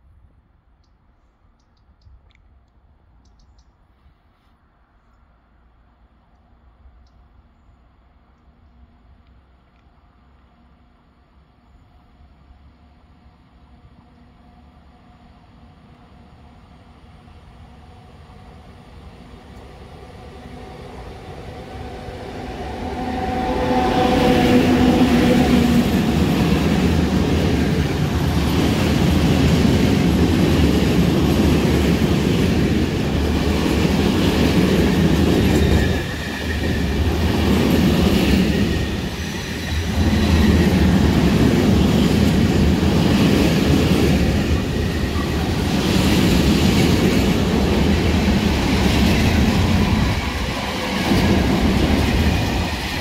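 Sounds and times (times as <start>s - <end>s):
freight train passing: 5.4s - 53.0s
wagons rumbling and clattering on rails: 23.2s - 53.0s.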